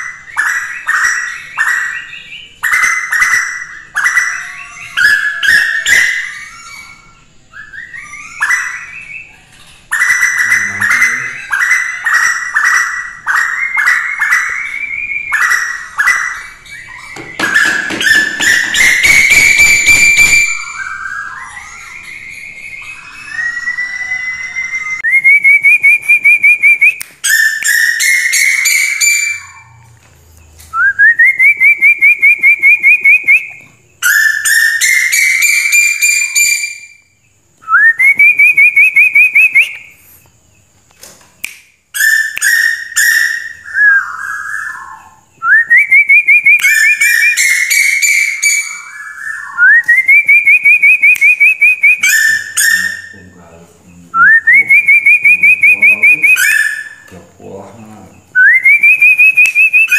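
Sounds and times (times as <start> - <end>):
bird whistled call with fast trill: 0.0 - 29.8, 30.8 - 37.1, 37.7 - 40.0, 42.0 - 53.4, 54.2 - 57.1, 58.4 - 59.9.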